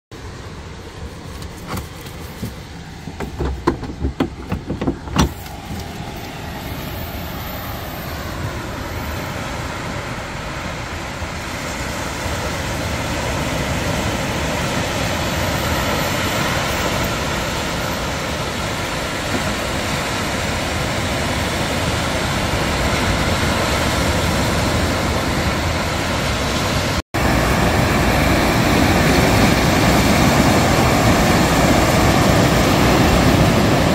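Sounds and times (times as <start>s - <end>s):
road traffic noise: 0.1s - 33.9s
sharp knocks: 1.7s - 5.6s
surf breaking on beach: 9.4s - 33.9s.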